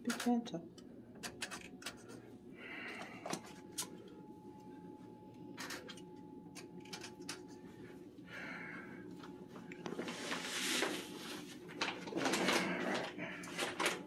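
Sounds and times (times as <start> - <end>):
plastic sleeve rustling: 9.8 - 14.0.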